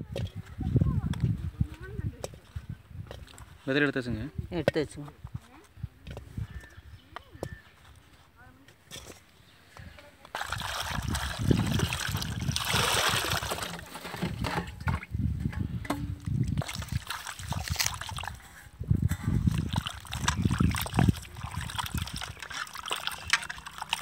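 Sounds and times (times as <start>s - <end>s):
water poured into steel bowl: 10.3s - 14.3s, 16.4s - 24.0s
hands swishing vegetables in water: 10.3s - 14.4s, 16.5s - 24.0s
water sloshing: 10.3s - 15.1s, 15.8s - 24.0s.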